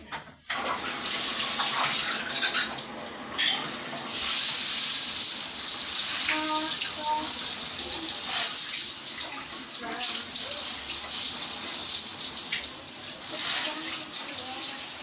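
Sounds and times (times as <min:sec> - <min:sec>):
bathtub faucet running: 0:00.4 - 0:15.0.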